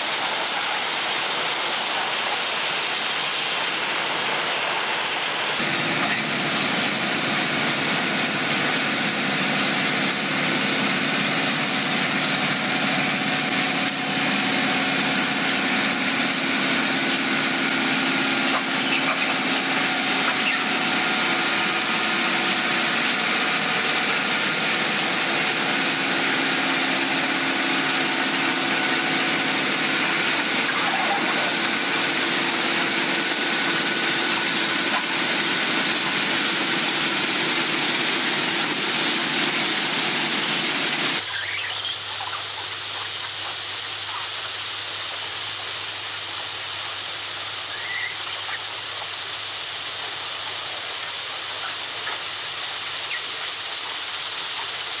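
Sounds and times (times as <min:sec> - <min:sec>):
digging wheel grinding stone: 0:05.6 - 0:41.8
machine engines running: 0:05.6 - 0:55.0.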